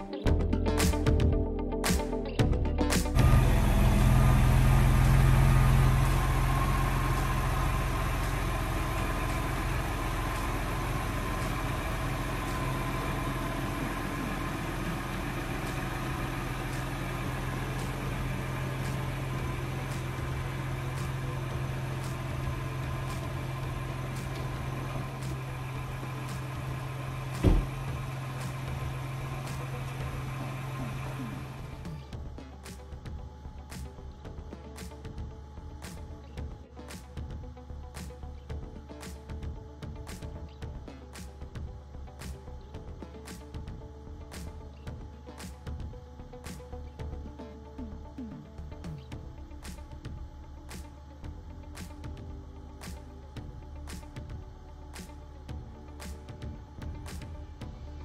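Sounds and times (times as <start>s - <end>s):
car engine idling: 2.4s - 58.0s
sharp knock: 27.4s - 27.7s.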